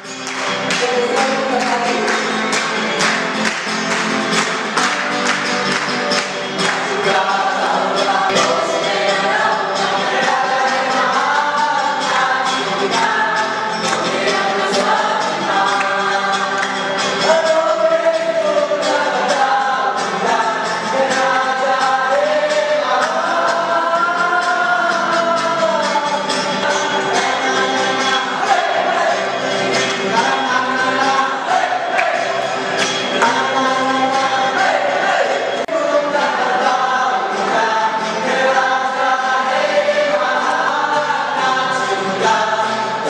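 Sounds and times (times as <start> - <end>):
congregation singing: 0.0 - 43.0
people clapping in rhythm: 0.0 - 43.0.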